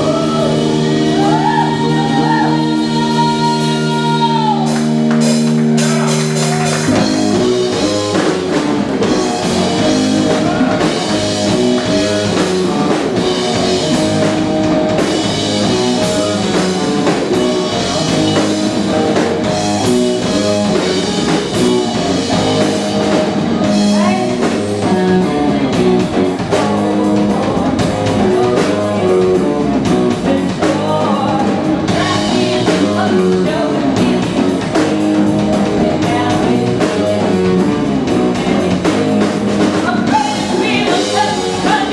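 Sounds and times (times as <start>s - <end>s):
woman singing: 0.0s - 4.8s, 23.6s - 37.5s, 39.7s - 41.9s
drum kit: 0.0s - 41.9s
electric guitars: 0.0s - 41.9s.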